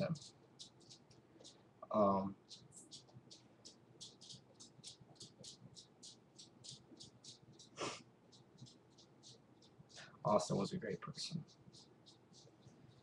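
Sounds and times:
high-pitched ticking hiss: 0:00.0 - 0:13.0
short sharp breath: 0:07.8 - 0:08.0.

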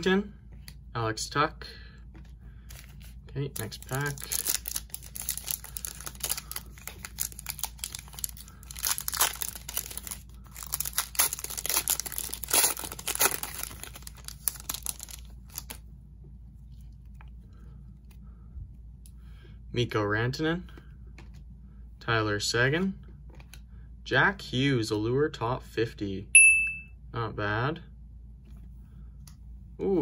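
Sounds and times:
foil wrapper tearing and crinkling: 0:03.6 - 0:15.8.

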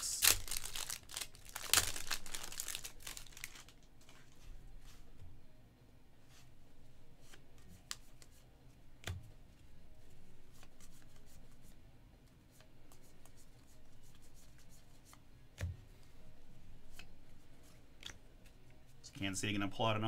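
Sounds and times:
cards rustling and sliding: 0:07.2 - 0:08.4.

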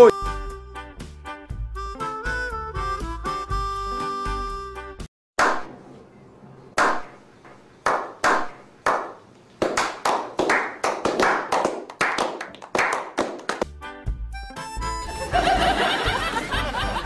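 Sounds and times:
men slow clapping: 0:07.8 - 0:13.7.

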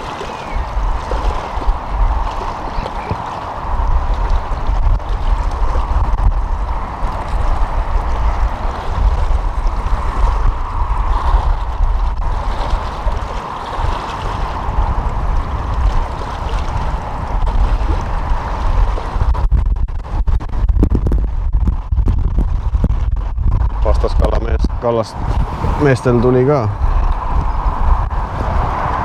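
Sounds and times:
water washing: 0:00.0 - 0:22.7
wind buffeting microphone: 0:00.0 - 0:29.0.

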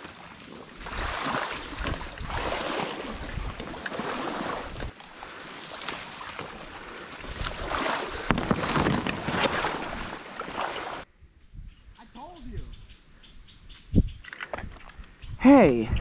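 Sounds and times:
footsteps sloshing through water: 0:00.0 - 0:11.0
stalks rustling: 0:00.3 - 0:11.0.

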